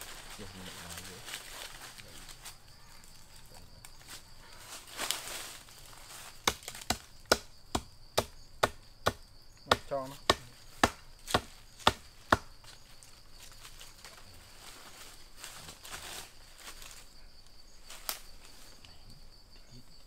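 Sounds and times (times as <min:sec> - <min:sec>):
machete chopping: 0:06.4 - 0:12.6.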